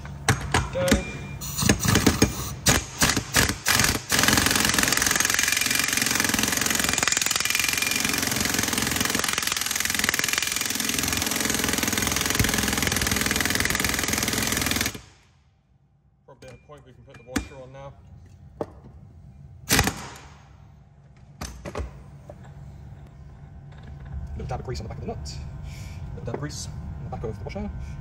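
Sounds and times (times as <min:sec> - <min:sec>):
pneumatic impact wrench rattling: 0:01.4 - 0:15.2.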